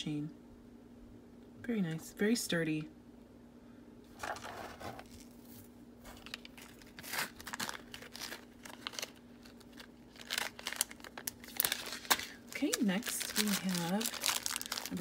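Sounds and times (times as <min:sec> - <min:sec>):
plastic bags crinkling: 0:04.2 - 0:15.0.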